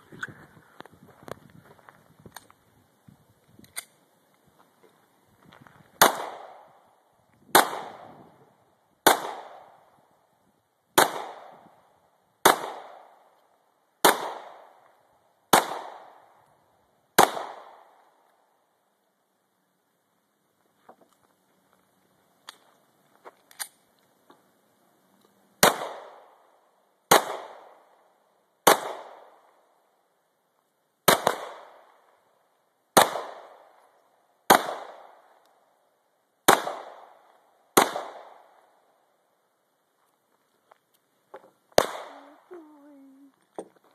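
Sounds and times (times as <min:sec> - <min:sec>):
pistol shots with echo: 0:06.0 - 0:06.8, 0:07.5 - 0:08.2, 0:09.0 - 0:09.9, 0:11.0 - 0:11.7, 0:12.4 - 0:13.2, 0:14.0 - 0:14.8, 0:15.5 - 0:16.3, 0:17.2 - 0:18.0, 0:25.6 - 0:26.4, 0:27.1 - 0:27.8, 0:28.6 - 0:29.4, 0:31.1 - 0:31.9, 0:33.0 - 0:33.7, 0:34.5 - 0:35.2, 0:36.5 - 0:37.2, 0:37.8 - 0:38.6, 0:41.8 - 0:42.4.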